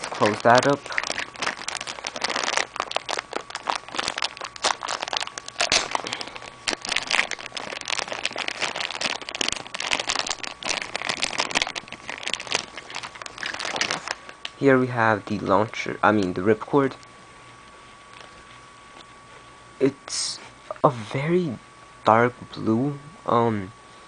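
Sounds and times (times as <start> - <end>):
plastic bag crinkling: 0.0 - 14.5.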